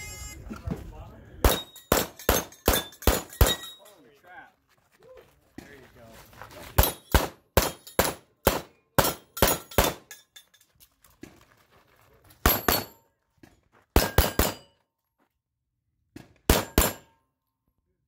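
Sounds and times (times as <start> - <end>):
pistol shots: 1.4 - 3.7, 6.8 - 10.1, 14.0 - 14.7, 16.5 - 17.1
steel targets ringing: 1.5 - 4.0, 9.0 - 10.4, 12.5 - 13.0, 16.5 - 17.2.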